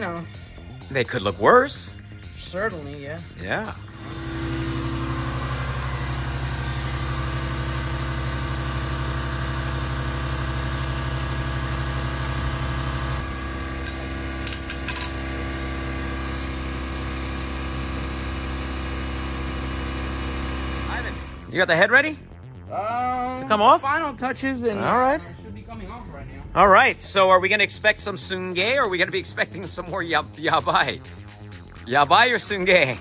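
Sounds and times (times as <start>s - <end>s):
mechanical hum: 3.8s - 21.5s.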